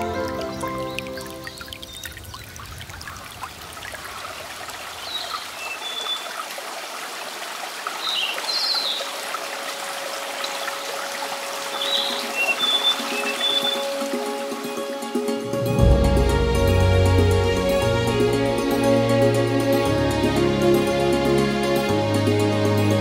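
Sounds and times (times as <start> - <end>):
music: 0.0 - 1.8, 9.6 - 23.0
stream water trickling: 0.0 - 23.0
high bird chirps: 11.7 - 13.9.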